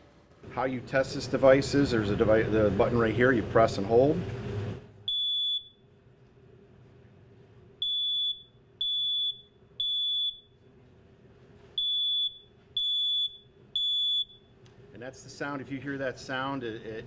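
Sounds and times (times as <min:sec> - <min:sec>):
smoke alarm beeping: 0:05.1 - 0:05.9, 0:07.8 - 0:10.6, 0:11.8 - 0:14.6.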